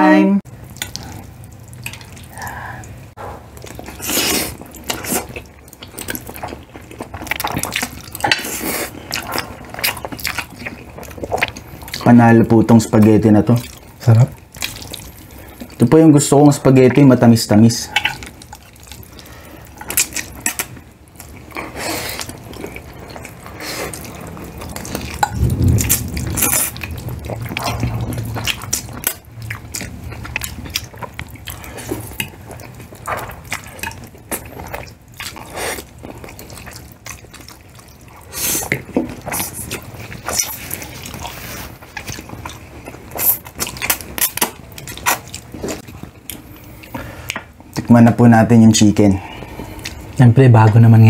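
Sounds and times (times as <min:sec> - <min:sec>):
wet chewing and slurping: 0:00.6 - 0:15.9, 0:17.8 - 0:47.9, 0:49.0 - 0:50.2.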